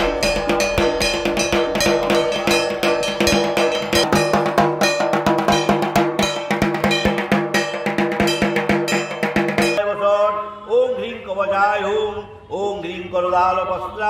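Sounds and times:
fast barrel drumming: 0.0 - 9.8.

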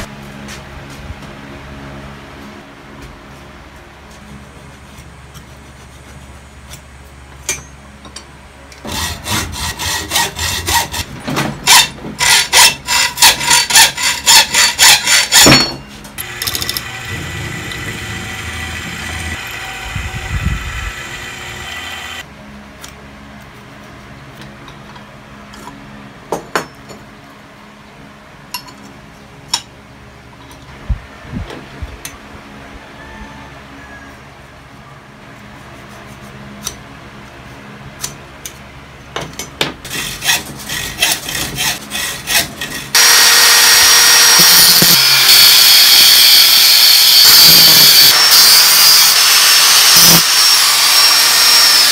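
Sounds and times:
hand tool stroking steel: 8.8 - 19.4, 39.8 - 51.9
drill press drilling steel: 11.7 - 22.2, 43.0 - 51.9.

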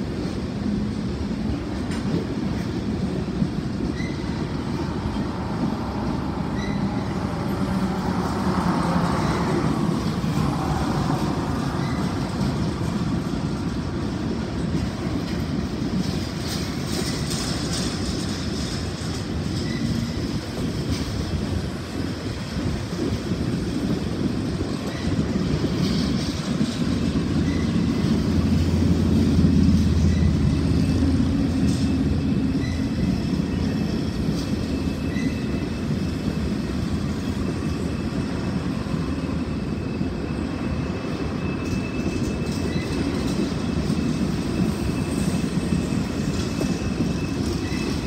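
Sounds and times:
train wheels rumbling on rails: 0.0 - 48.0
faint wheel squeaks: 6.4 - 7.5, 19.5 - 20.2.

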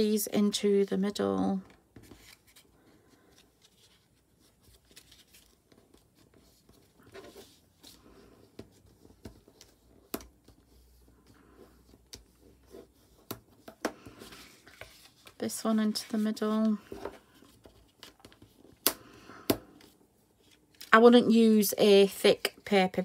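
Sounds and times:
paper rustling: 2.0 - 18.8.

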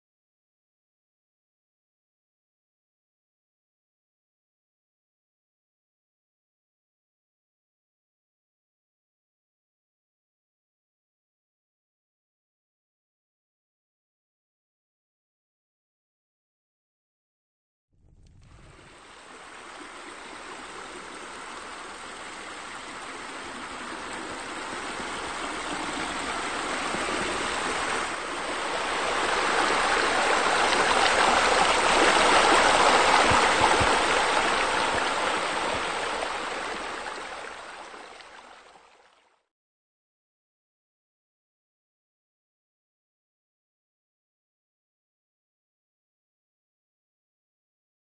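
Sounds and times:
waterfall pouring into pool: 18.7 - 39.2.

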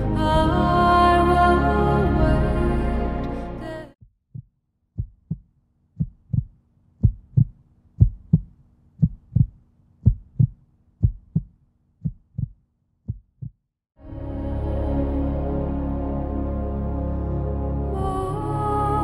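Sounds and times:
heartbeat double thumps: 4.0 - 13.6.

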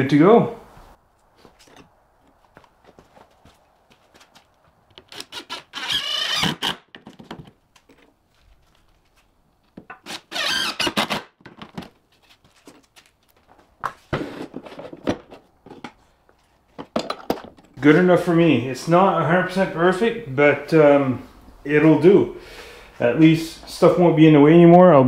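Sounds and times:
power drill whining: 5.1 - 6.9, 10.0 - 11.2.

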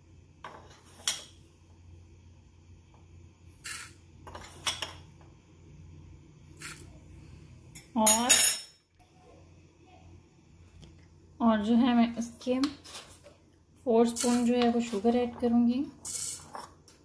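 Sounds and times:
spoon scooping coffee granules: 6.5 - 6.9, 14.1 - 16.8.

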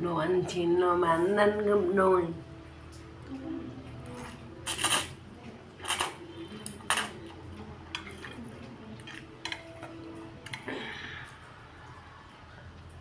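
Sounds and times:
chopsticks clicking on metal bowl: 9.0 - 10.7.

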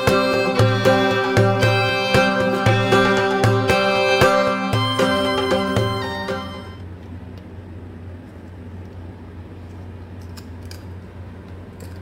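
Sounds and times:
background music: 0.0 - 6.8
low room hum: 0.0 - 12.0.

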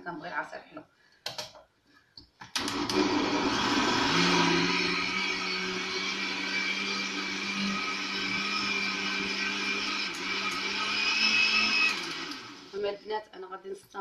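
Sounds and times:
blender switch clicks: 2.4 - 3.1
electric blender running: 2.6 - 12.8.

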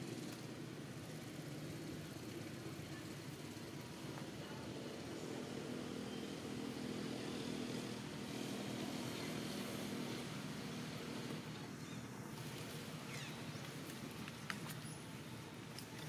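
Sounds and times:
engine running steadily: 0.0 - 16.0.

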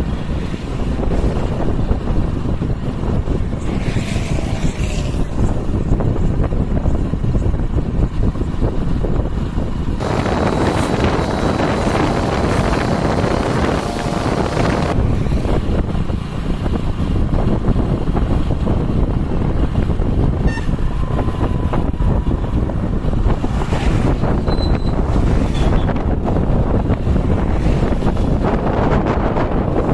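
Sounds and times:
moving vehicle engine and road noise: 0.0 - 29.9
wind buffeting microphone: 0.0 - 29.9
vehicle passing close rushing: 9.9 - 29.9.

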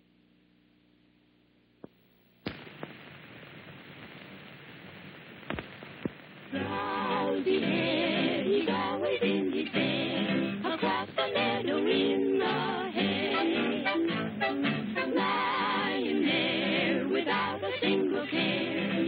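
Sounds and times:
faint hum: 0.0 - 19.0
film hiss: 0.0 - 19.0
sharp clicks and pops: 1.8 - 6.5
singing with music: 6.5 - 19.0.

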